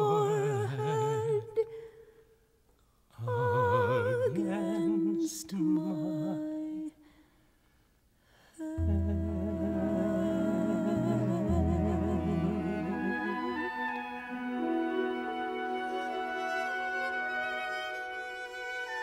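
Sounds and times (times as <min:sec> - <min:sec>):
wordless vocal with vibrato: 0:00.0 - 0:02.3, 0:03.1 - 0:07.2, 0:08.5 - 0:14.7
sustained chord with deep bass: 0:08.8 - 0:13.6.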